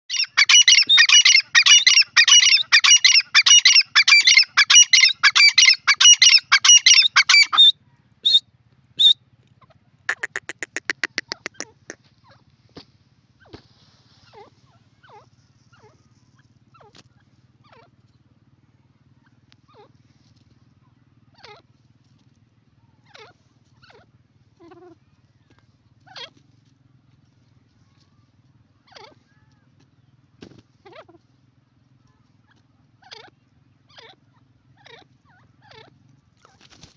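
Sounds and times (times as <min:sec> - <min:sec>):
francolin calling: 0:00.1 - 0:08.4, 0:10.1 - 0:12.0.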